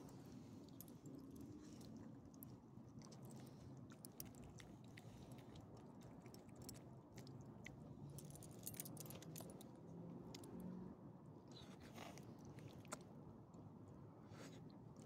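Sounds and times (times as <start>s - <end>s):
small dogs chewing and licking: 0.2s - 9.6s.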